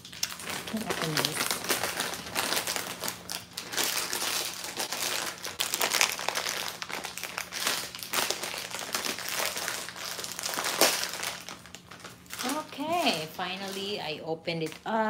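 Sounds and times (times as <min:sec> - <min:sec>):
plastic packaging crinkling: 0:00.0 - 0:15.0.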